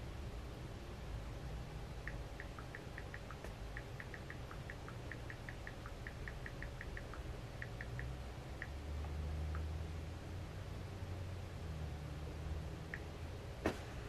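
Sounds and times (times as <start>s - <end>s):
low steady hum: 0.0s - 14.0s
keyboard clicks: 2.1s - 8.1s.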